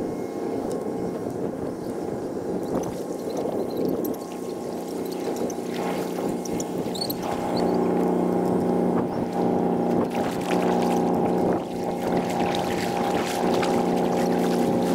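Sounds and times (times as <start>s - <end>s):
low droning hum: 0.0s - 14.9s
paddle splashing in water: 4.2s - 7.4s, 9.3s - 14.9s.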